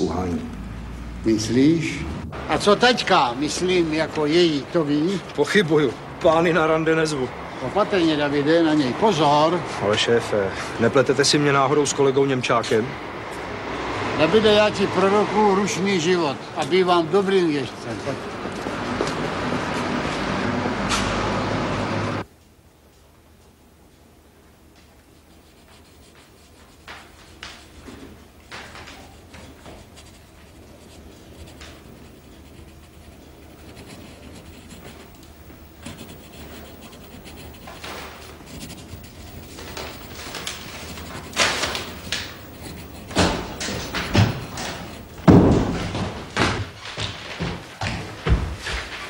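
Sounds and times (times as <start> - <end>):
knocks and rustles in a room: 22.2 - 49.0
sharp thumps: 34.2 - 46.6
door slamming: 43.1 - 46.6.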